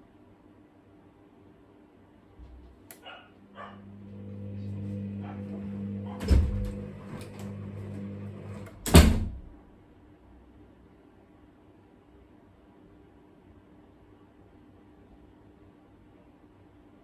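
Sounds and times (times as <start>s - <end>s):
washing machine motor humming: 3.4s - 9.5s.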